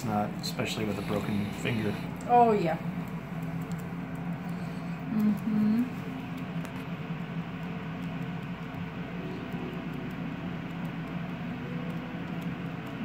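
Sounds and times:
tattoo pen humming: 0.6 - 2.5.

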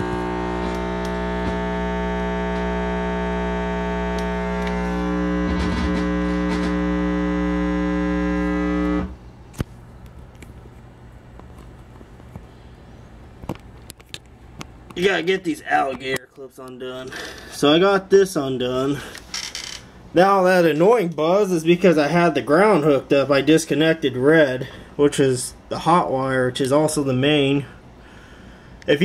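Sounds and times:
ground loop hum: 0.0 - 12.4, 14.5 - 19.2.

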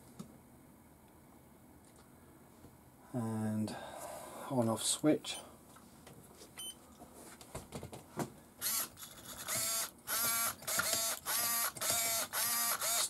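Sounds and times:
steering servo whirring: 8.6 - 13.0.

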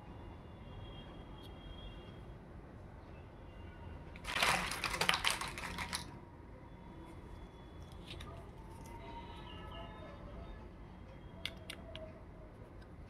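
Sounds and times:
plastic crackling and clicking: 4.2 - 6.1, 11.4 - 12.2.

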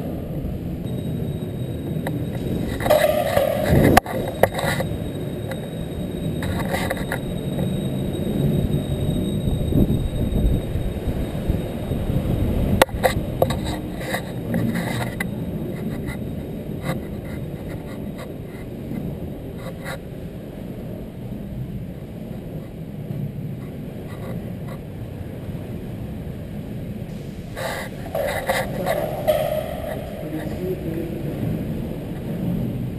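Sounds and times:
sharp knock: 2.8 - 4.1, 28.1 - 30.2.

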